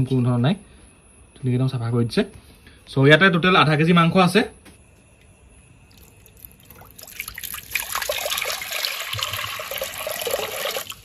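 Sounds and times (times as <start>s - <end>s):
water pouring into pot: 5.9s - 11.0s.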